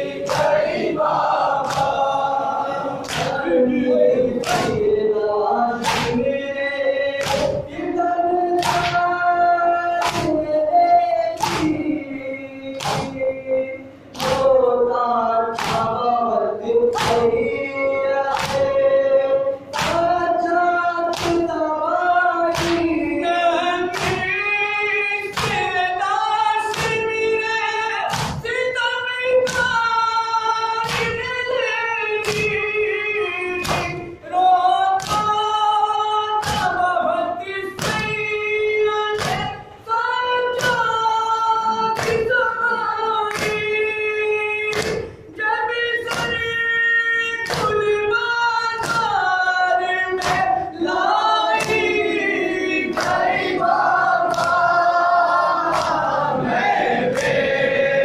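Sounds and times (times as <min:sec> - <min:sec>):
men chanting in chorus: 0:00.0 - 0:46.6, 0:47.3 - 0:58.0
hands slapping chests: 0:00.2 - 0:02.2, 0:03.0 - 0:03.5, 0:04.4 - 0:04.9, 0:05.8 - 0:06.4, 0:07.2 - 0:07.7, 0:08.6 - 0:09.2, 0:10.0 - 0:10.5, 0:11.4 - 0:11.9, 0:12.8 - 0:13.2, 0:14.1 - 0:14.6, 0:15.6 - 0:16.0, 0:16.9 - 0:17.4, 0:18.3 - 0:18.8, 0:19.7 - 0:20.1, 0:21.1 - 0:21.5, 0:22.5 - 0:23.0, 0:23.9 - 0:24.3, 0:28.1 - 0:28.5, 0:30.8 - 0:31.3, 0:33.6 - 0:34.1, 0:35.0 - 0:35.4, 0:36.4 - 0:36.8, 0:39.2 - 0:39.6, 0:42.0 - 0:42.3, 0:43.3 - 0:43.7, 0:44.7 - 0:45.2, 0:47.4 - 0:47.9, 0:50.2 - 0:50.5, 0:51.5 - 0:52.2, 0:52.8 - 0:54.8, 0:55.6 - 0:56.3, 0:57.0 - 0:57.6.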